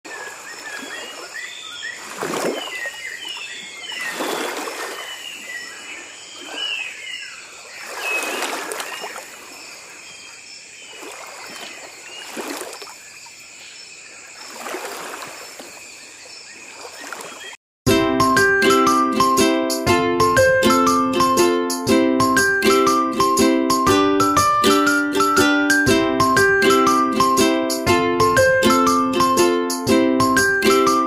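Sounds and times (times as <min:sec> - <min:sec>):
water sloshing in plastic tub: 0:02.0 - 0:05.6, 0:07.6 - 0:10.0, 0:10.9 - 0:13.2, 0:14.4 - 0:15.9.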